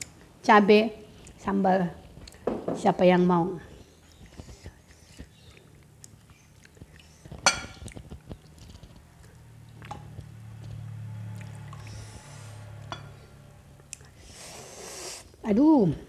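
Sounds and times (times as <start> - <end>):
low steady hum: 0.0 - 16.0
spoon clinking on plate and bowl: 7.4 - 7.8, 12.9 - 13.2.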